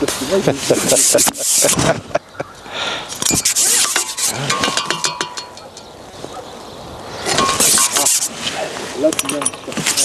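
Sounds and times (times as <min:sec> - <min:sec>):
fishing pole sections rubbing: 0:00.6 - 0:01.8, 0:03.2 - 0:05.7, 0:07.3 - 0:10.0.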